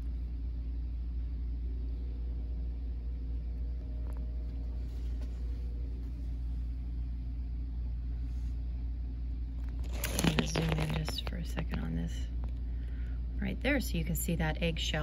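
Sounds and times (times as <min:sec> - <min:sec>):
aquarium equipment humming: 0:00.0 - 0:15.0.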